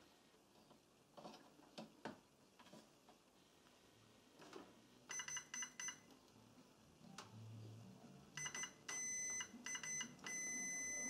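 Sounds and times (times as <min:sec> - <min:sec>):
multimeter continuity beeps: 0:05.1 - 0:06.1, 0:08.4 - 0:11.0.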